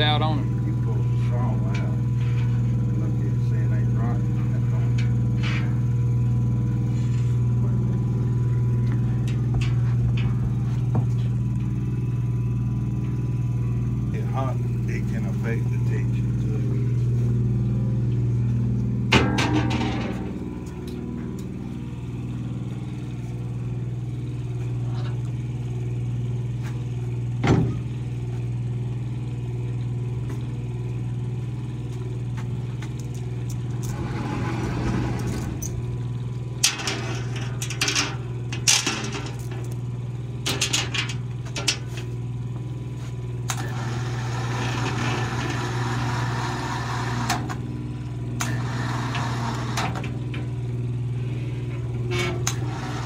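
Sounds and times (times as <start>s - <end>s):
shop machinery humming: 0.0s - 53.0s
metal clanks and rattles: 19.1s - 21.4s, 36.6s - 39.8s, 40.4s - 42.1s.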